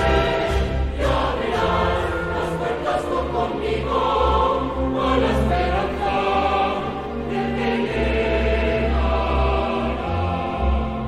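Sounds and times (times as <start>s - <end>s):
choir singing held notes: 0.0s - 11.0s
steady low musical backing: 0.0s - 11.0s.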